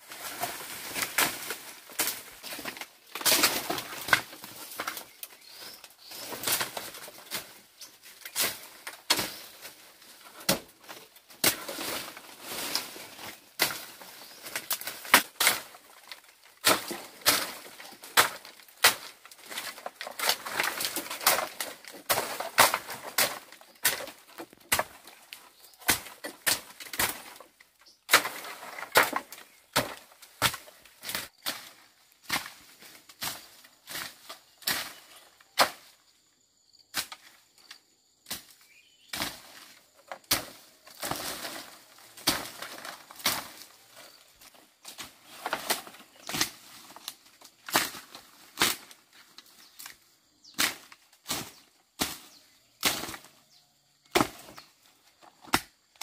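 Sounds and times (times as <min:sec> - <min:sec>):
rustle of cut vegetation: 0:00.0 - 0:36.1, 0:36.9 - 0:56.0
hand tool chopping brush: 0:16.6 - 0:27.4.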